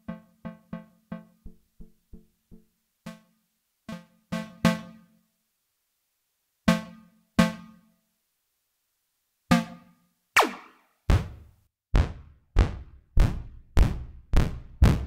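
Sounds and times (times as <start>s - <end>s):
synthesizer pluck notes: 0.0s - 3.2s.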